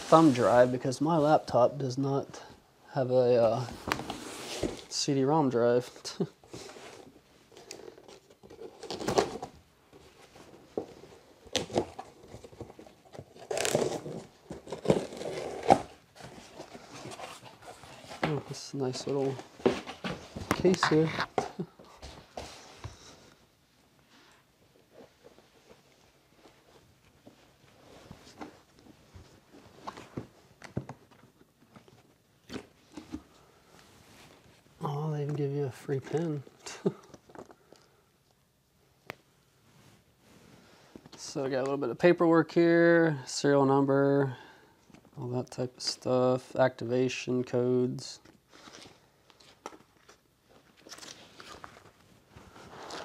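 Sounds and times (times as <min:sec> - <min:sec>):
tape tearing and crinkling: 0:07.6 - 0:09.5, 0:11.5 - 0:16.0.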